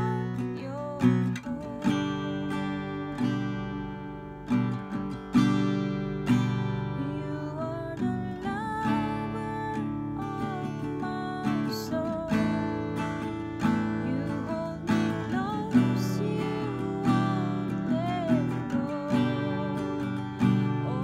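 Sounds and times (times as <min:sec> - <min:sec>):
person singing: 0:00.0 - 0:03.7, 0:06.7 - 0:21.0
acoustic guitar strumming: 0:00.0 - 0:21.0.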